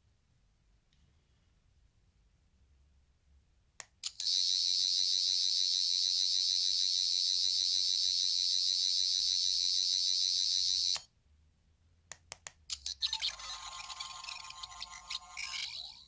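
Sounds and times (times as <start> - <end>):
high-pitched electronic whir: 4.1 - 11.0.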